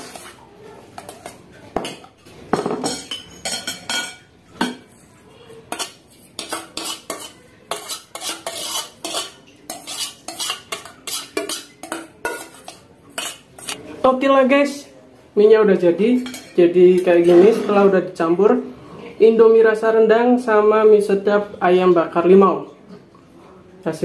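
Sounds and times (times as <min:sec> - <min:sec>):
metal spoon scraping saucepan: 0:00.0 - 0:14.0.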